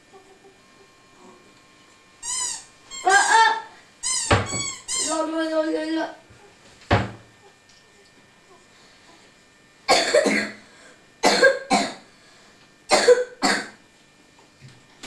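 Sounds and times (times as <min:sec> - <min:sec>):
person coughing: 0:09.9 - 0:10.6, 0:11.2 - 0:12.0, 0:12.9 - 0:13.8.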